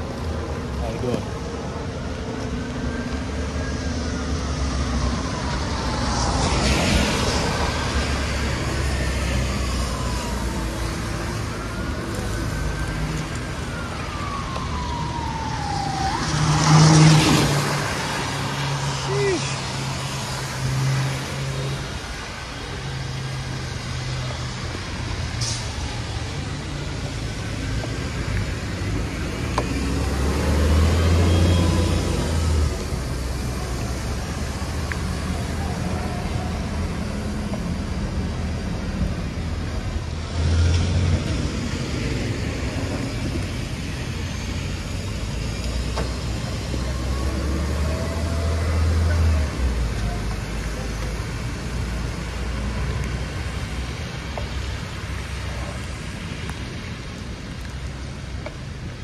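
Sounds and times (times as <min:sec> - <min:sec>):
vehicle engines droning: 0:00.0 - 0:59.0
tyres hissing on wet road: 0:03.8 - 0:59.0.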